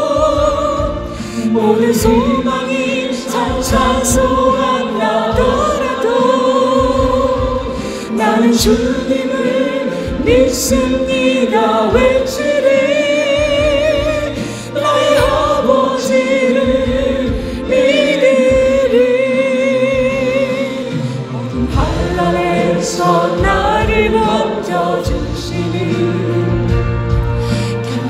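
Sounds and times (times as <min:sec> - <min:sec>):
instrumental accompaniment: 0:00.0 - 0:28.0
person singing with vibrato: 0:00.0 - 0:28.0.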